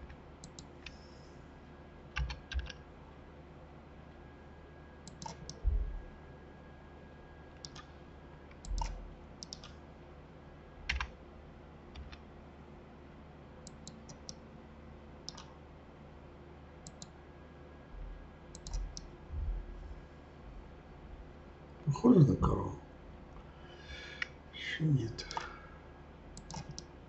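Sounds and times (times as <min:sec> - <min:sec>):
keyboard and mouse clicks: 0:00.0 - 0:01.0, 0:02.2 - 0:02.8, 0:05.1 - 0:05.6, 0:07.6 - 0:07.9, 0:08.5 - 0:09.8, 0:10.9 - 0:11.1, 0:12.0 - 0:12.2, 0:13.6 - 0:14.4, 0:15.3 - 0:15.5, 0:16.8 - 0:17.1, 0:18.5 - 0:19.1, 0:25.2 - 0:25.5, 0:26.4 - 0:26.9.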